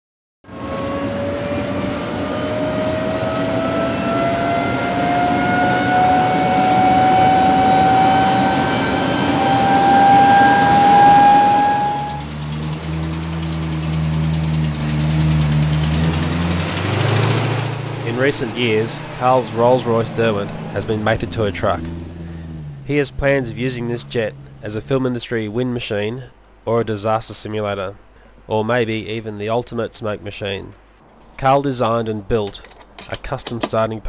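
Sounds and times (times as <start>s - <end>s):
jet engine spooling up: 0.5s - 22.6s
low engine hum: 0.5s - 26.7s.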